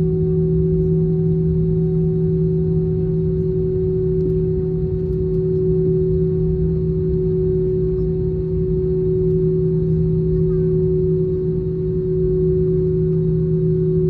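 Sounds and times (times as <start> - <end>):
airplane cabin engine drone: 0.0 - 14.0.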